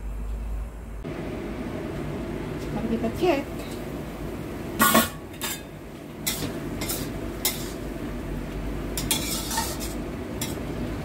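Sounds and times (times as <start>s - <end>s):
sauce sizzling: 3.5s - 11.0s
spatula scraping a metal wok: 4.8s - 7.9s, 9.0s - 10.7s.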